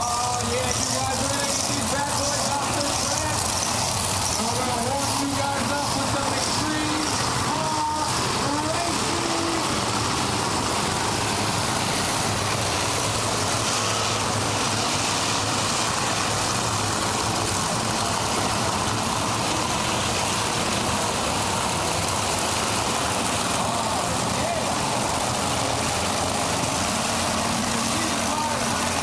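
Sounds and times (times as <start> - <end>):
truck engines running: 0.0 - 29.0.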